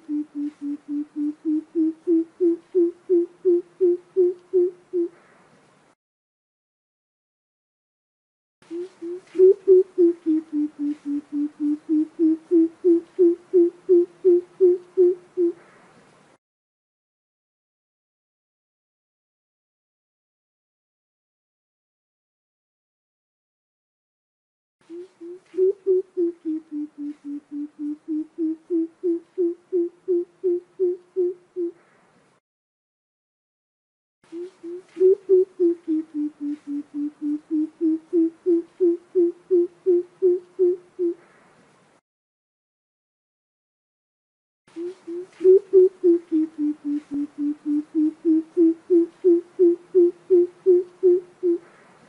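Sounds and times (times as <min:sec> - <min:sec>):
bird deep hooting calls: 0:00.0 - 0:05.3, 0:08.7 - 0:15.7, 0:24.9 - 0:31.8, 0:34.4 - 0:41.2, 0:44.8 - 0:51.8.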